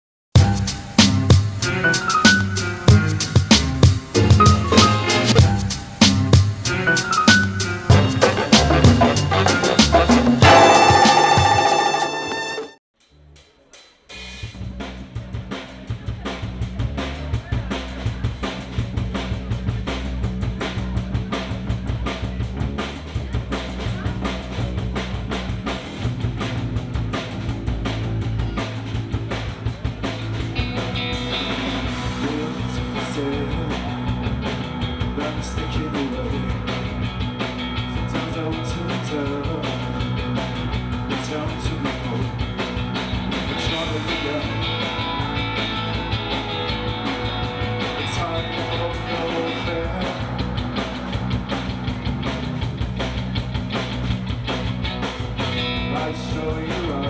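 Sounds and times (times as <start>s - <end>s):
drum kit beat: 0.3s - 57.0s
electric bass line: 0.4s - 12.8s, 14.5s - 57.0s
trumpet: 4.1s - 5.7s, 6.6s - 12.8s
electric guitar: 28.2s - 57.0s.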